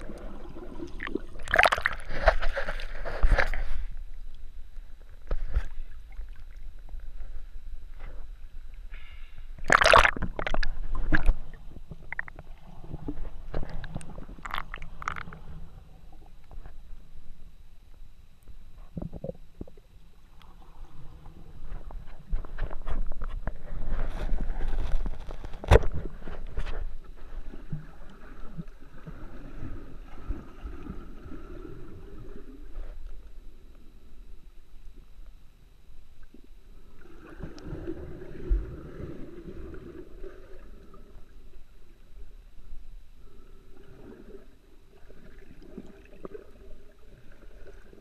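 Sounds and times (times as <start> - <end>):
water splashing: 0.0 - 3.1, 9.6 - 15.5
underwater clicks and gurgles: 0.0 - 48.0.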